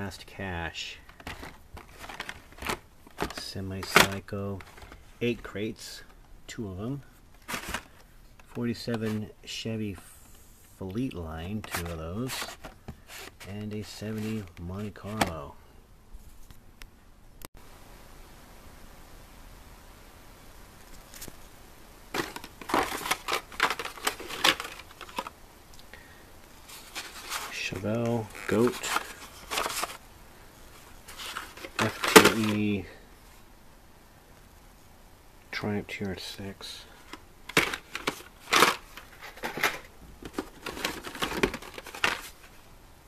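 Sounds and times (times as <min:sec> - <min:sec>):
plastic packaging crinkling and clacking: 0:01.0 - 0:05.0, 0:07.4 - 0:09.1, 0:22.1 - 0:25.9, 0:26.7 - 0:30.0, 0:31.1 - 0:32.6, 0:37.1 - 0:42.5.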